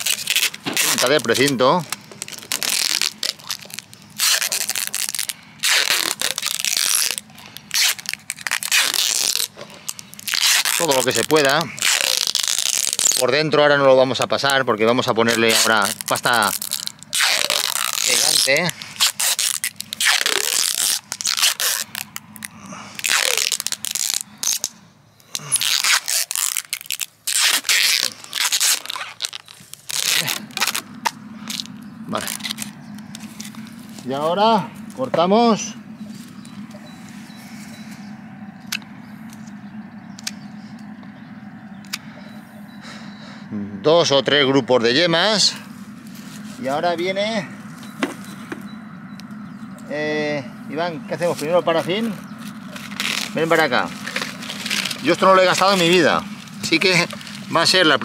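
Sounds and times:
packing tape pulled off roll: 0:00.0 - 0:13.3, 0:15.3 - 0:34.0, 0:52.0 - 0:57.6.

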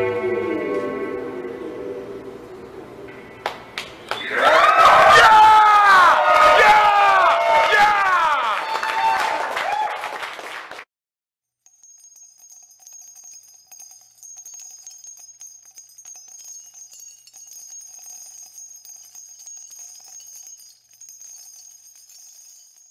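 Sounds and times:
small bells jingling: 0:11.6 - 0:22.9.

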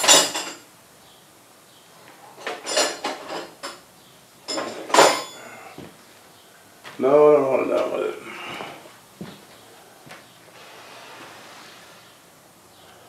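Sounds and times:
metal hand tools clanking: 0:02.4 - 0:03.8.

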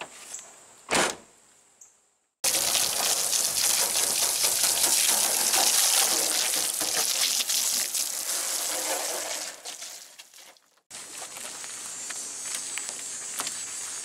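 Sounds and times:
water spraying onto car: 0:02.4 - 0:10.4.

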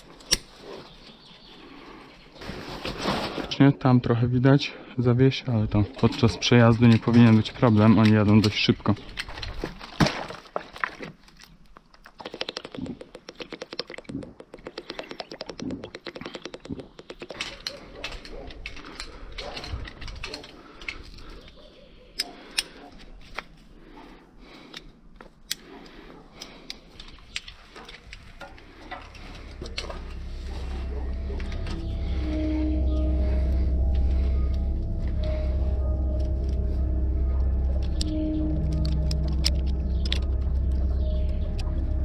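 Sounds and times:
metal climbing hardware clicking: 0:26.5 - 0:29.9
low rumble: 0:28.1 - 0:42.0.

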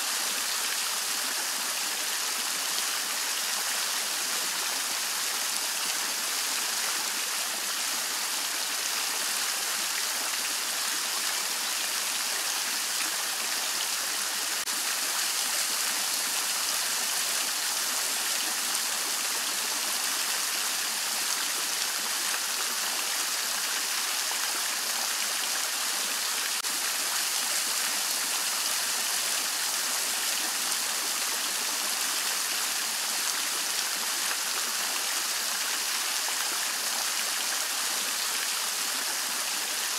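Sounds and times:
fountain water splashing: 0:00.0 - 0:39.9.

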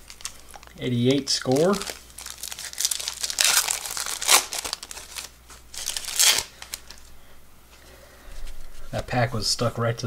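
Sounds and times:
wrapper tearing and crackling: 0:00.0 - 0:07.0.

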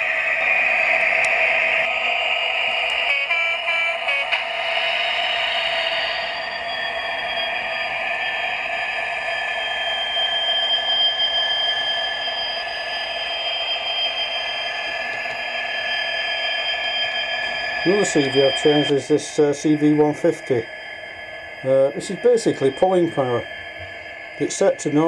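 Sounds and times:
steady high whine: 0:00.0 - 0:25.0
diesel engine sound from small speaker: 0:17.8 - 0:20.8, 0:21.6 - 0:25.0.

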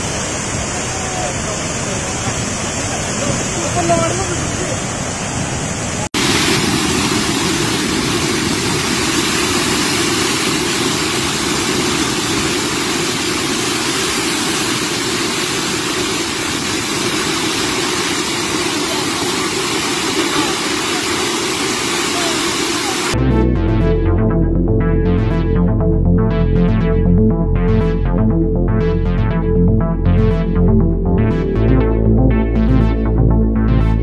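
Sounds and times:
waterfall rushing: 0:00.0 - 0:23.2.

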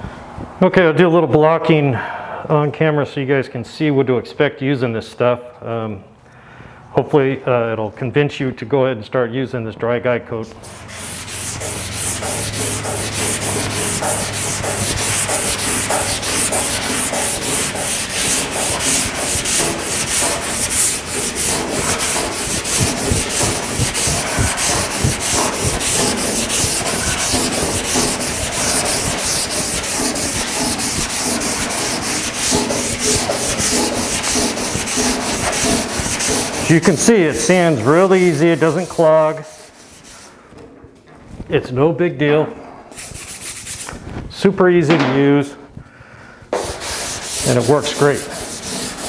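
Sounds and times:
sandpaper scrubbing on metal: 0:10.6 - 0:40.4, 0:42.9 - 0:44.0, 0:46.6 - 0:49.0.

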